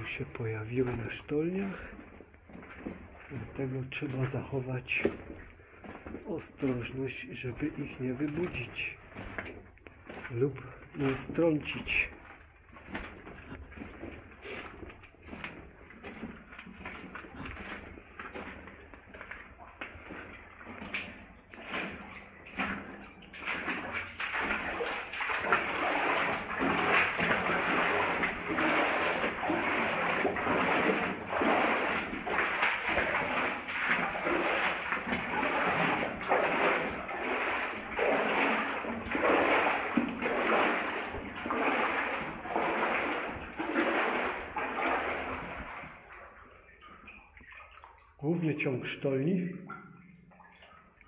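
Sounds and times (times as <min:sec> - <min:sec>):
footsteps wading through water: 0:00.0 - 0:51.0.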